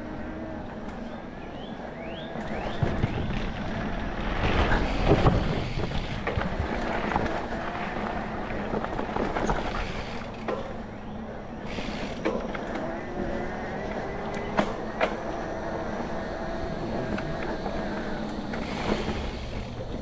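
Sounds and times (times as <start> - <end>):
bike rattling over bumps: 0.0 - 20.0
wind noise on microphone: 2.6 - 10.2.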